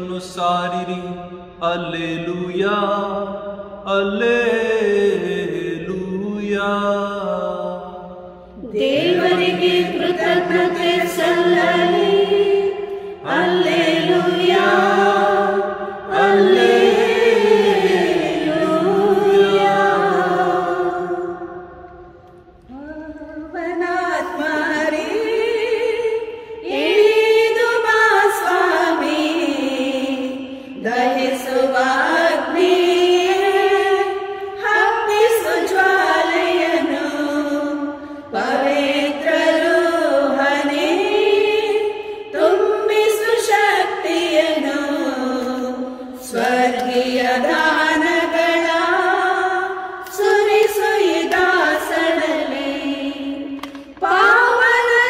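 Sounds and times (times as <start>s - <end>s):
women's choir singing a hymn: 8.6s - 22.1s, 22.7s - 55.0s.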